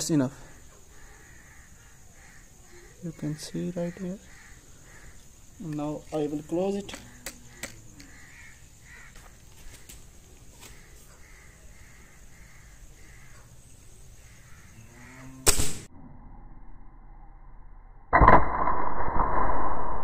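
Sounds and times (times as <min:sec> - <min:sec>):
crows cawing faintly: 0:00.4 - 0:15.6
air rifle shot crack: 0:15.5 - 0:15.9.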